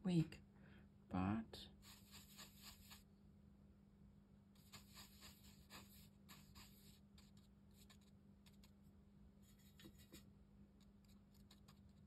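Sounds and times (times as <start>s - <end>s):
low steady hum: 0.0s - 12.0s
brush scratching on paper: 1.8s - 3.1s, 4.6s - 8.8s, 9.4s - 12.0s.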